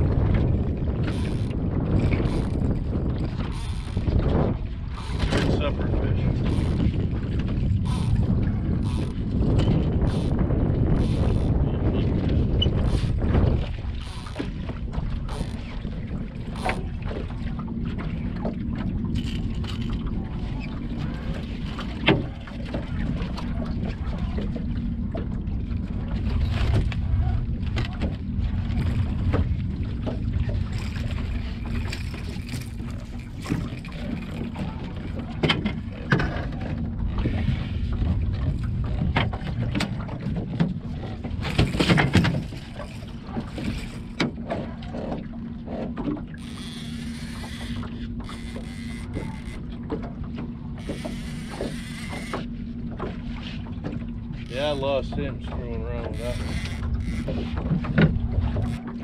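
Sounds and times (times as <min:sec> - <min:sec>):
boat motor running: 0:00.0 - 0:59.0
knocks and clicks of gear: 0:30.8 - 0:37.4, 0:38.4 - 0:53.2, 0:56.0 - 0:59.0.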